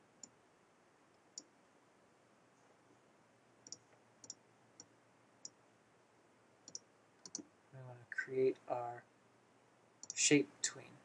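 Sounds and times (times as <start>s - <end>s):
computer mouse clicks: 3.6s - 5.6s, 6.7s - 7.5s, 10.0s - 10.2s.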